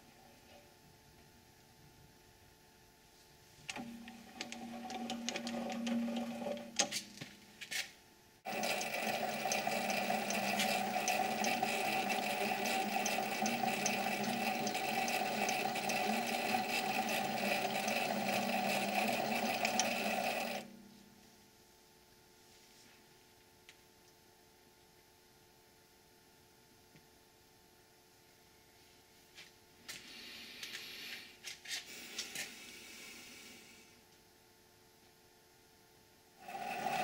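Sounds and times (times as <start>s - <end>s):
lathe motor and gear whine: 3.7s - 6.7s, 8.5s - 20.7s, 36.4s - 37.0s
tool ticking and scraping on steel: 8.5s - 20.7s.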